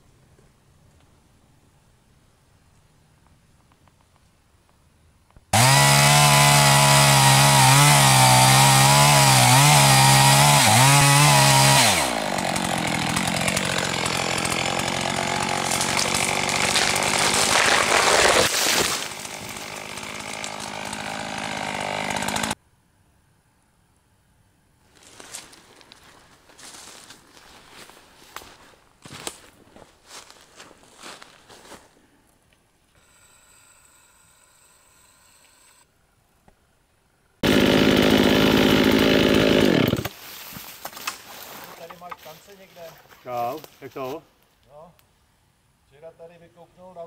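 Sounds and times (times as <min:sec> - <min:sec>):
chainsaw sawing wood: 0:05.5 - 0:22.6, 0:32.9 - 0:35.9, 0:37.4 - 0:44.2.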